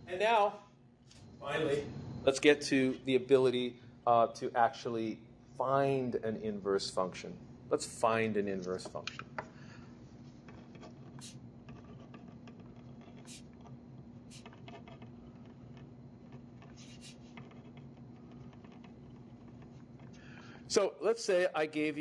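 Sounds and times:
steady low hum: 0.0 - 22.0
pen scratching on paper: 10.3 - 20.1.

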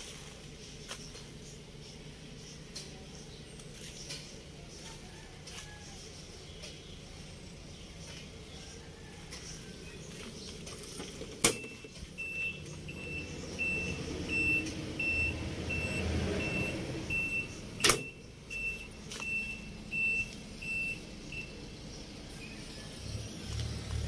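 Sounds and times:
reversing alarm beeping: 11.5 - 22.1.

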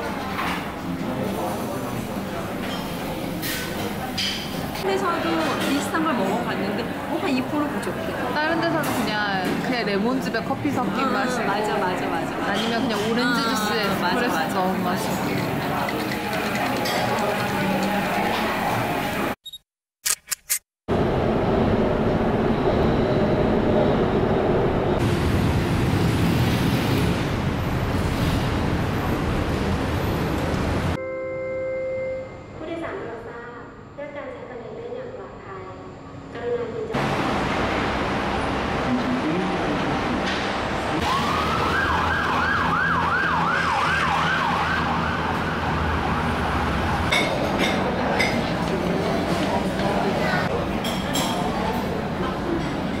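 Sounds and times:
road traffic: 20.9 - 31.0, 37.0 - 53.0
siren wailing: 41.0 - 47.1.

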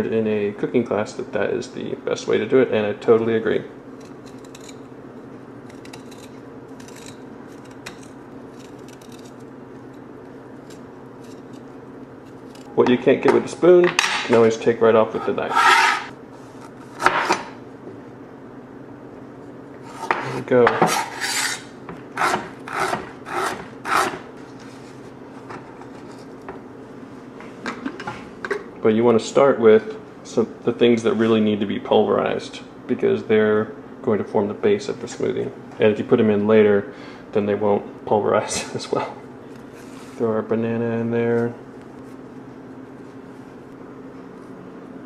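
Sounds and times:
spoon scraping ginger: 5.6 - 10.0
knife scraping cutting board: 5.7 - 9.4, 15.1 - 17.5, 19.8 - 26.3.

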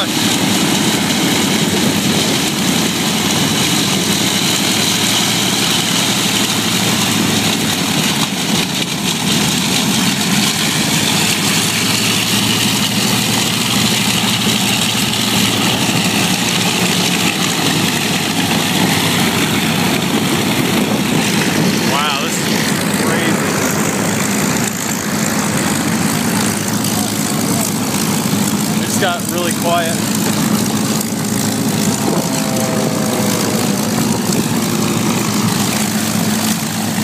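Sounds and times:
aircraft engines droning: 0.0 - 37.0.

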